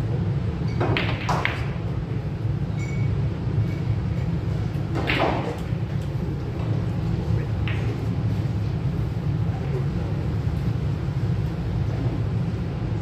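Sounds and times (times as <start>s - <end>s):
steady low hum: 0.0s - 13.0s
pool balls clacking: 0.7s - 1.9s, 4.8s - 8.1s.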